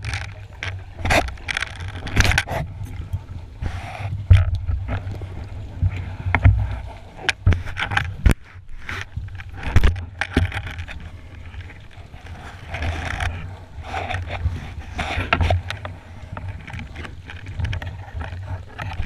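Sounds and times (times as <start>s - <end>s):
sharp clicks and knocks: 0.0s - 3.0s, 7.2s - 11.7s
muffled underwater rushing: 0.0s - 19.0s.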